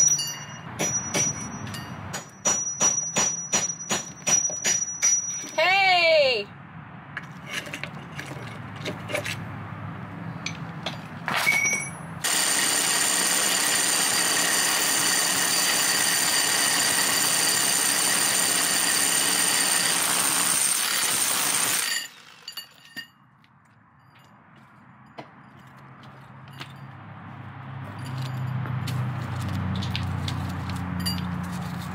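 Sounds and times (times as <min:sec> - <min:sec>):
rotary hammer drilling into brick: 0:12.2 - 0:22.8.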